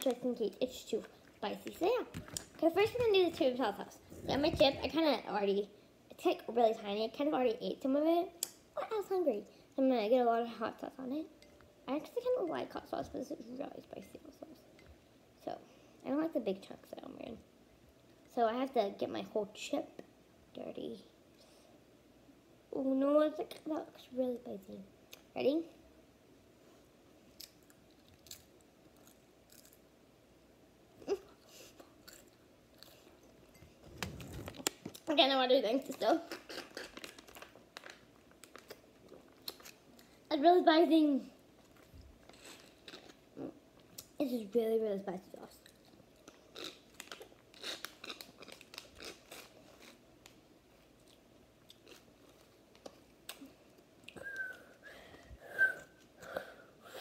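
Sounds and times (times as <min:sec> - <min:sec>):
crunching and chewing chip: 0:27.3 - 0:29.8, 0:31.9 - 0:33.2, 0:36.3 - 0:40.1, 0:41.7 - 0:43.2, 0:45.6 - 0:53.4
whistly breaths through lips: 0:54.2 - 0:56.5.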